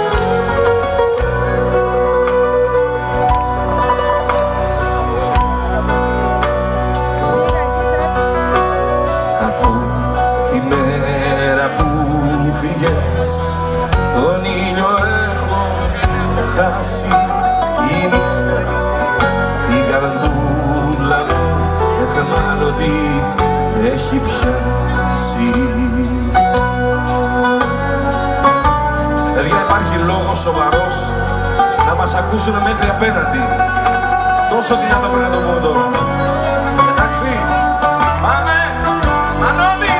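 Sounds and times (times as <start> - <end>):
live band with bouzouki and violin: 0.0 - 39.9.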